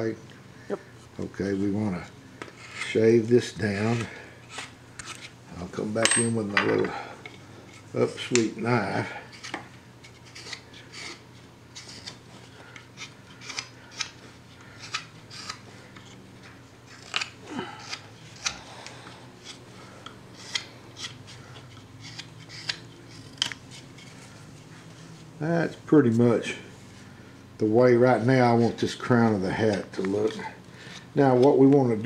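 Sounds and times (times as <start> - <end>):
carving knife slicing wood: 13.0 - 14.2, 14.8 - 16.2, 20.3 - 21.2, 22.0 - 24.0.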